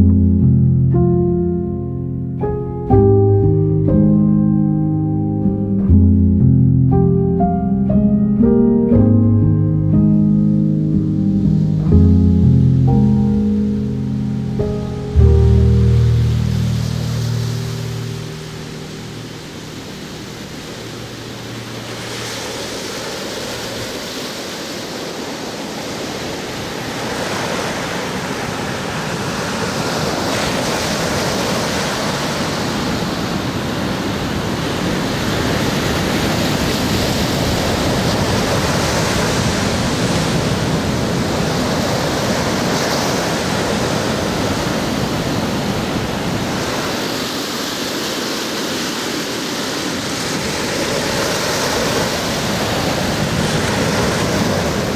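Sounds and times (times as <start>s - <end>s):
wind: 0.0s - 54.9s
waves breaking on a beach: 13.0s - 54.9s.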